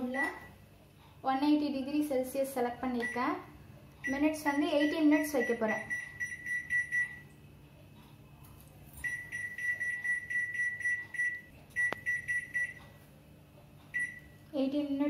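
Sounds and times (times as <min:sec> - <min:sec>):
microwave keypad beeping: 0:00.0 - 0:00.6, 0:03.0 - 0:03.3, 0:04.0 - 0:07.3, 0:09.0 - 0:13.0, 0:13.9 - 0:14.4.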